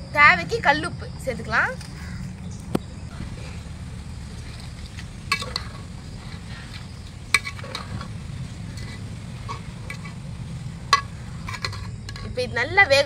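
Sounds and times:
food sizzling: 3.1 - 13.0
spoon stirring in metal pot: 4.2 - 12.5.

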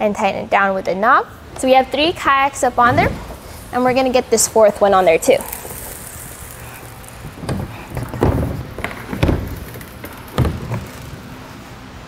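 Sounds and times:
plastic kayak hull knocking: 7.4 - 11.0.

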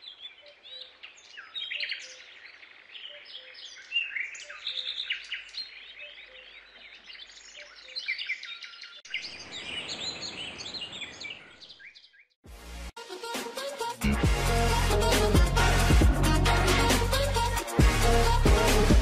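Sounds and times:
small birds chirping: 0.0 - 12.4.

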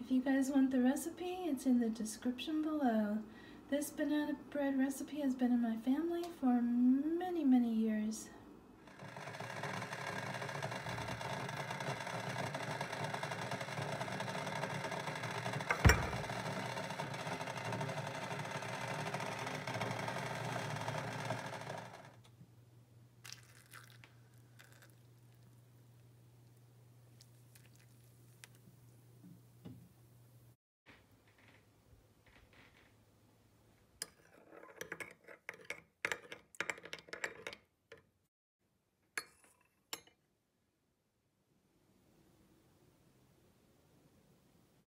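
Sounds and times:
water poured into teacup: 23.2 - 25.4, 27.2 - 28.6.

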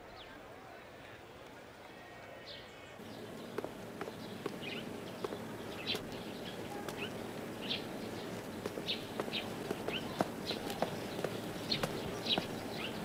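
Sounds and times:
small birds chirping: 2.4 - 13.0
light taps and clicks: 3.0 - 13.0.

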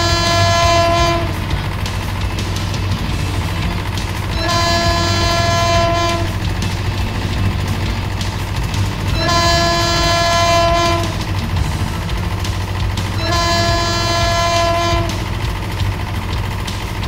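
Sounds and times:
train horn blasts: 0.0 - 1.5, 4.4 - 6.5, 9.1 - 11.4, 13.1 - 15.4
train rumbling: 0.0 - 17.0.

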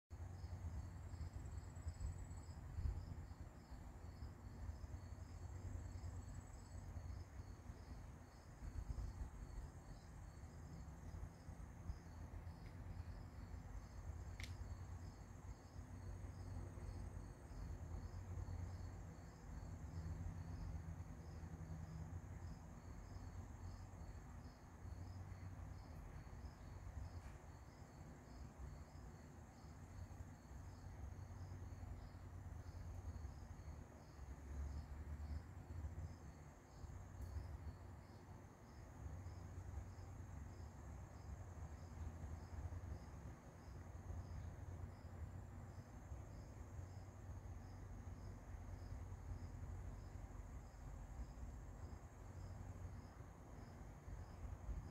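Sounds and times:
crickets chirping: 0.1 - 54.9
high insect trill: 0.2 - 54.9
sharp click: 14.4 - 14.6.

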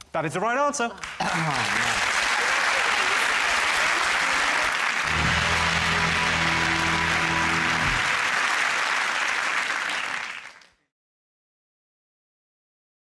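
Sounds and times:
audience applauding: 1.0 - 10.8
held musical chord: 5.1 - 8.4.

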